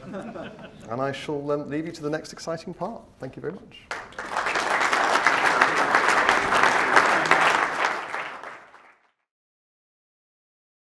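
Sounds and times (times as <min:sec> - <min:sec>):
audience applauding: 0:03.9 - 0:09.2.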